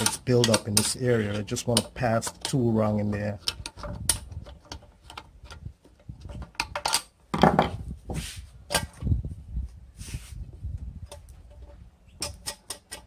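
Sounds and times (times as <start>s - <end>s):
screwdriver scraping and clicking on metal: 0.0s - 7.1s, 11.1s - 13.0s.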